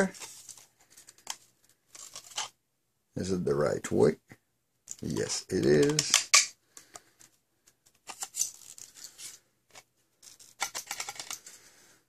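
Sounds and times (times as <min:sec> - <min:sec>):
plastic parts clicking: 0:04.9 - 0:11.6.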